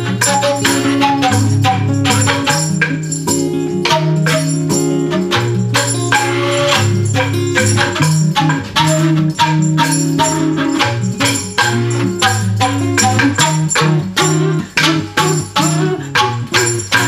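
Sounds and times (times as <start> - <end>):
acoustic guitar and flute music: 0.0 - 17.0.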